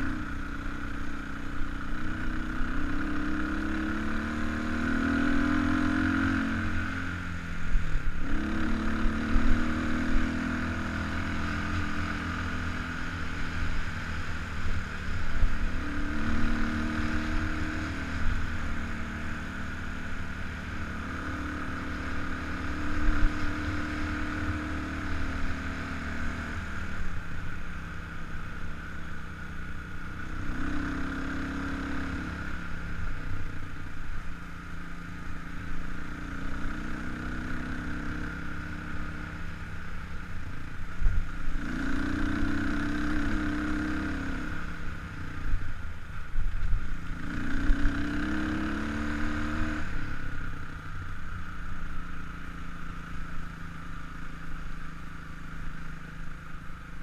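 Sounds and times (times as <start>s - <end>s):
dirt bike engine revving: 47.2s - 50.0s.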